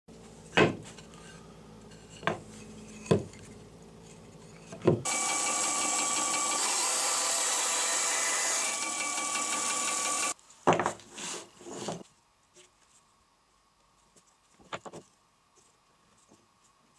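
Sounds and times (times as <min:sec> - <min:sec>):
band saw cutting wood: 0:05.0 - 0:10.4.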